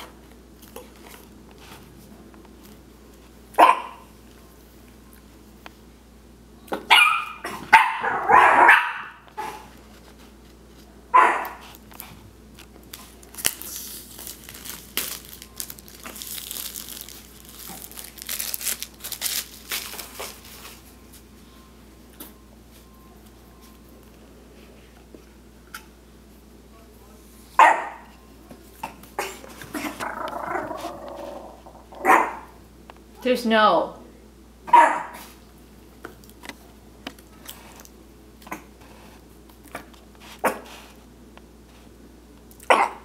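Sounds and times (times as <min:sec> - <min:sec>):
dog barking: 0:03.6 - 0:04.1, 0:06.9 - 0:09.7, 0:11.1 - 0:11.6, 0:27.6 - 0:28.1, 0:32.0 - 0:32.5, 0:34.7 - 0:35.2, 0:42.7 - 0:43.0
plastic wrap crinkling: 0:11.6 - 0:21.0.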